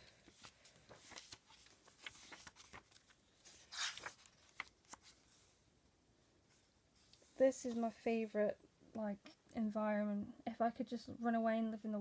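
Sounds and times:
pages being turned: 0.0s - 5.4s.

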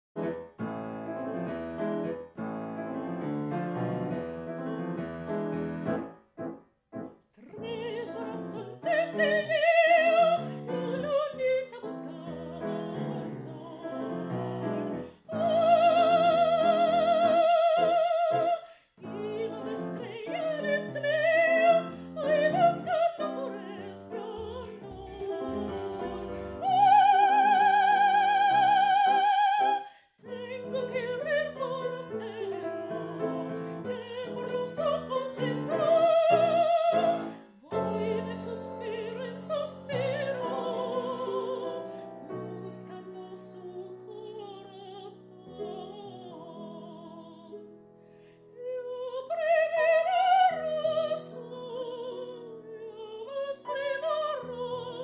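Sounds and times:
piano accompaniment: 0.2s - 55.0s
operatic singing: 7.4s - 47.6s.

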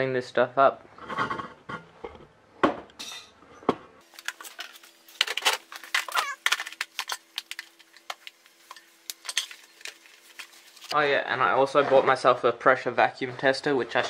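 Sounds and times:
tools clattering on bench: 4.6s - 10.1s.

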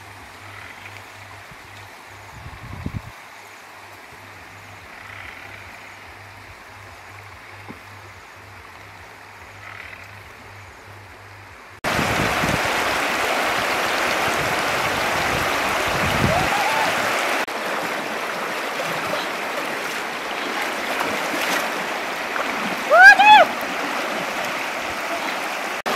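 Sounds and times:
river rushing over rocks: 11.8s - 25.9s.

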